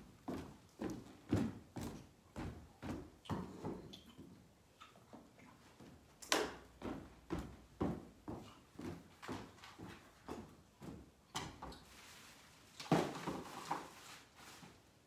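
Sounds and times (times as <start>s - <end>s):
footsteps on wooden floor: 0.0s - 4.4s, 6.7s - 11.7s.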